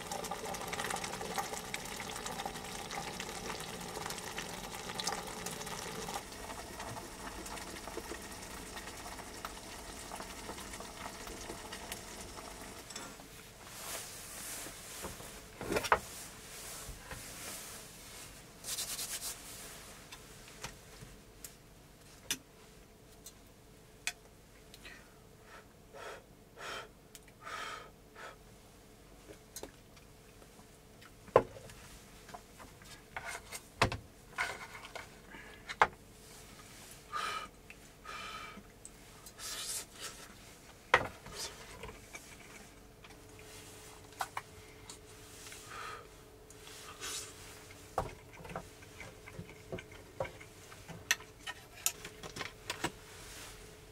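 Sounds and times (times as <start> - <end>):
faint steady hum: 0.0 - 53.9
cloth rubbing and rustling: 13.4 - 21.0, 53.0 - 53.8.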